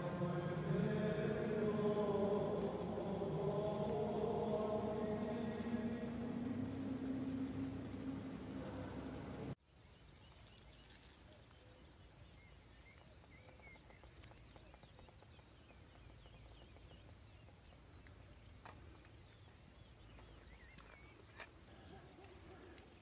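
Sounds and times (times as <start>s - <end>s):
steady hum: 0.0s - 9.6s
faint birdsong: 0.0s - 23.0s.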